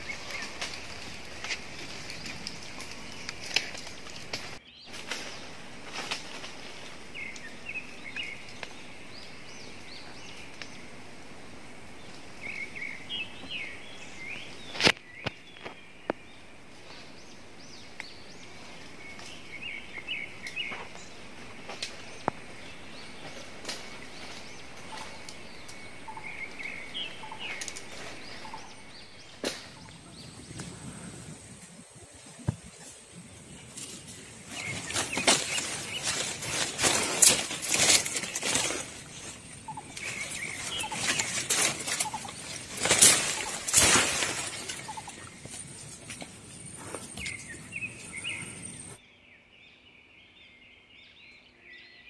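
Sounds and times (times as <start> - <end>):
bird chirping: 12.0 - 52.0.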